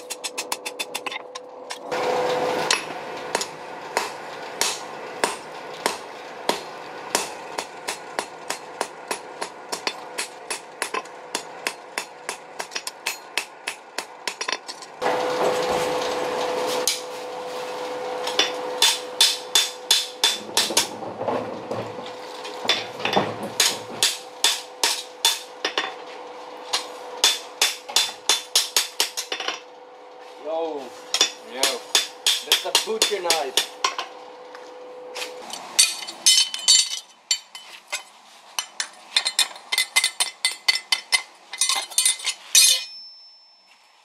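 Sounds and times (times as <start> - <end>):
hammer striking steel on anvil: 0.0 - 1.8, 2.6 - 14.8, 18.3 - 21.0, 23.6 - 26.0, 26.7 - 29.7, 31.1 - 34.1, 35.5 - 38.0, 38.6 - 43.7.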